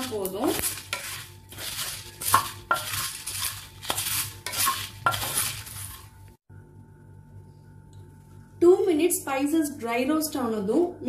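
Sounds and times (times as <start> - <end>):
dried chillies rattling: 0.0 - 6.1
metal spatula scraping a pot: 0.0 - 6.2.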